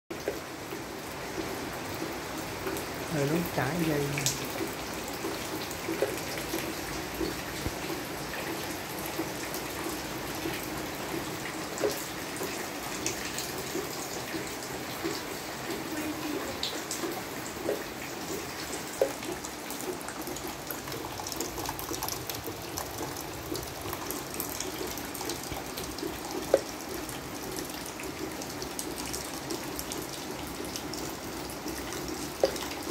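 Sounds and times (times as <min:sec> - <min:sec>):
steady rain: 0:00.1 - 0:32.9
water drops ticking in plastic basin: 0:00.1 - 0:32.9.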